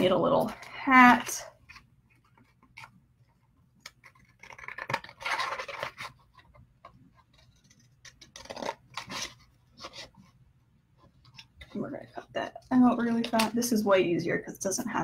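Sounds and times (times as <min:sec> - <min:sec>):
cardboard scratching and rustling: 0:03.9 - 0:10.4.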